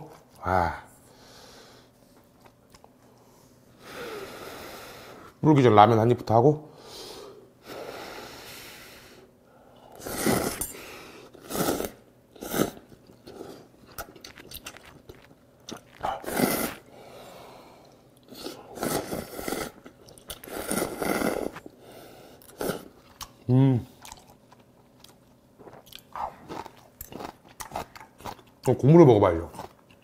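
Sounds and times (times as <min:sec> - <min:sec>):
noodles being slurped: 0:11.4 - 0:16.9
wet chewing: 0:12.7 - 0:16.9, 0:24.0 - 0:28.8.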